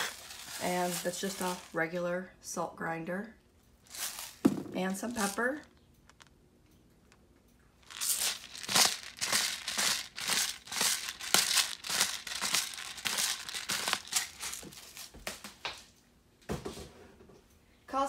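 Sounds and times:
pepper grinder crunching: 0.0 - 1.8, 3.8 - 6.3, 7.8 - 15.1.

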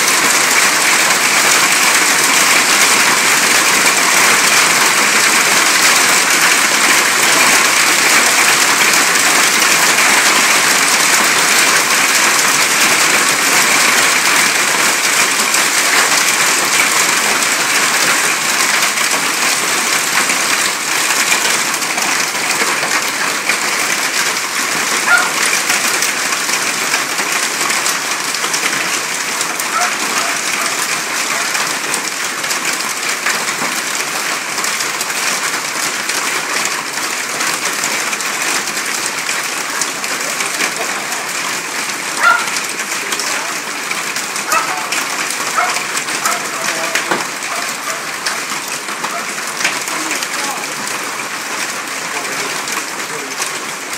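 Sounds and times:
hail and heavy rain pelting: 0.0 - 53.9.

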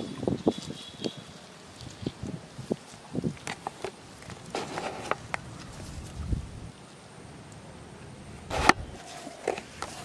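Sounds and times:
footsteps in tall grass: 0.0 - 6.7.

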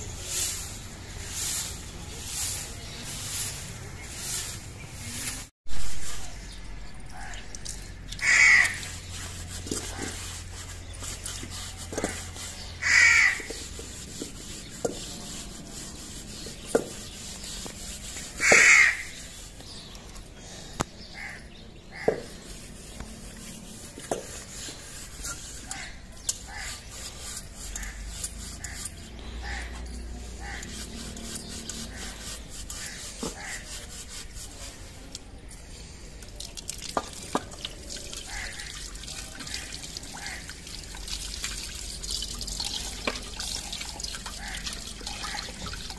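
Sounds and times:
dishes being scrubbed: 0.0 - 20.2, 21.9 - 35.3, 36.6 - 45.9
crow cawing: 8.2 - 8.8, 12.8 - 13.4, 18.4 - 19.1.

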